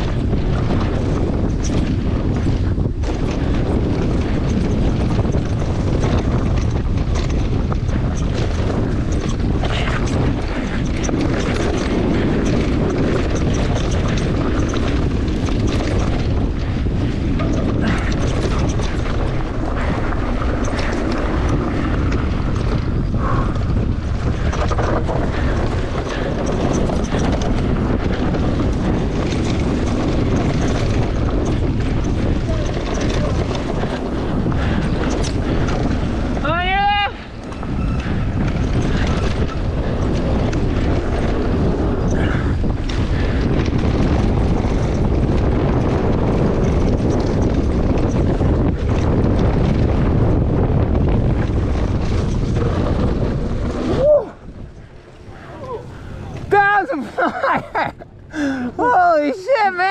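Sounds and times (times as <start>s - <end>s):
bike knocks and rattles: 0.0s - 58.6s
tyres rumbling over dirt: 0.0s - 59.9s
wind buffeting microphone: 0.0s - 59.9s.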